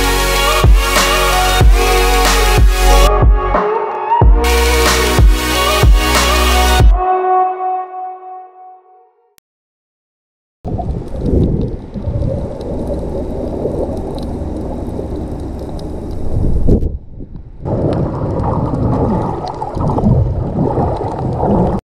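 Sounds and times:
muffled underwater rumble and gurgling: 0:10.7 - 0:21.8.

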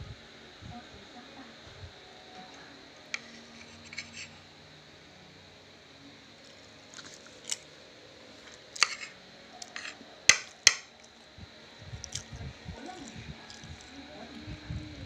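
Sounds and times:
spoon scraping a plate: 0:03.2 - 0:04.4, 0:08.4 - 0:10.9.

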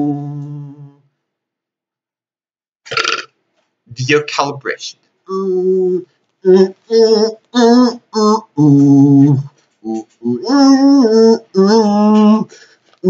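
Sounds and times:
person singing wordless tune: 0:00.0 - 0:01.1, 0:05.3 - 0:13.0.

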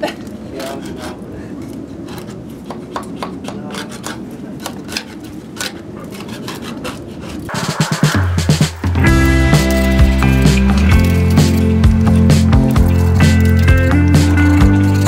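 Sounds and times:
hand scraper scraping paint off wood: 0:02.1 - 0:07.5.

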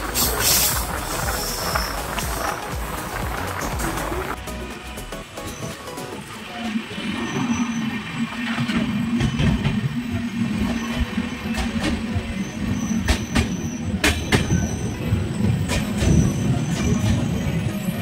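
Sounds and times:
train wheels clacking on track: 0:00.0 - 0:04.4, 0:08.4 - 0:17.9
train rumbling through tunnel: 0:00.0 - 0:18.0.

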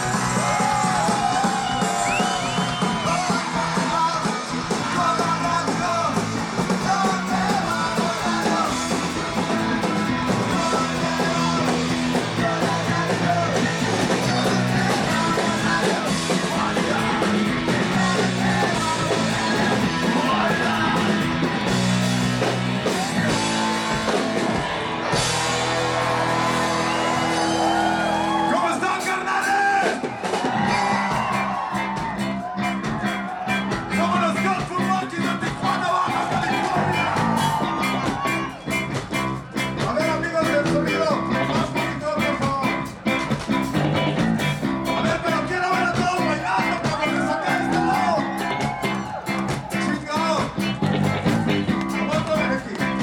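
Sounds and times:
person singing: 0:00.0 - 0:21.8
electric guitar chords: 0:00.0 - 0:29.4, 0:30.7 - 0:53.0
drum kit: 0:00.0 - 0:53.0
ska punk band music: 0:00.0 - 0:53.0.

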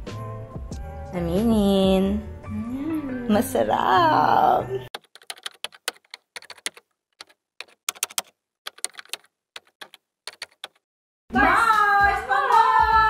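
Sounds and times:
keyboard typing clicks: 0:04.9 - 0:10.8.

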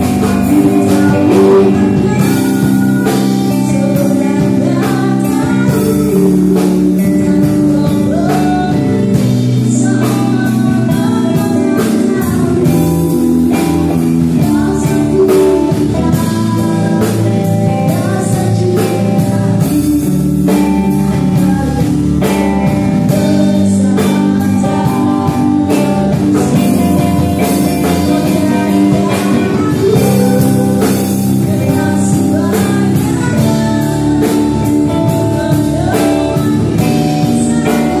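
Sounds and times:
drum kit beat: 0:00.0 - 0:38.0
electric guitar: 0:00.0 - 0:38.0
woman singing into microphone: 0:00.0 - 0:38.0.

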